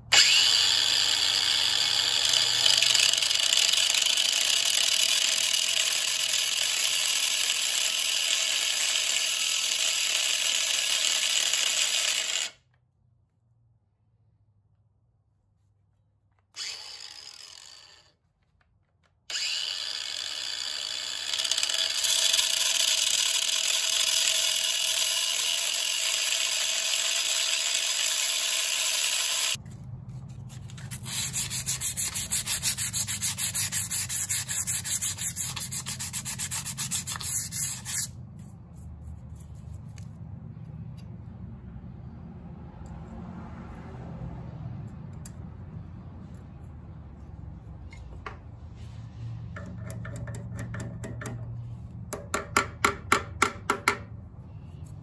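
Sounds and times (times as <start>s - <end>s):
angle grinder grinding steel: 0.1s - 12.6s, 16.6s - 18.1s, 19.3s - 29.6s, 30.8s - 38.2s.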